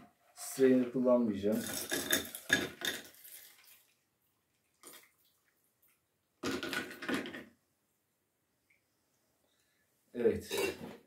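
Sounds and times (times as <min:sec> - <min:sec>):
liquid pouring and splashing into ice: 0:01.5 - 0:07.2.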